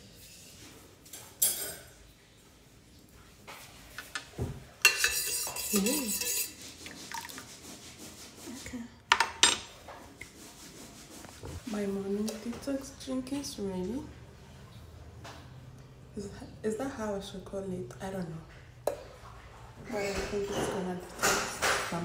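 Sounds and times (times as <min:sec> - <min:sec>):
kitchenware clattering: 0:01.0 - 0:02.1, 0:03.9 - 0:07.4, 0:09.1 - 0:10.1, 0:18.9 - 0:22.0.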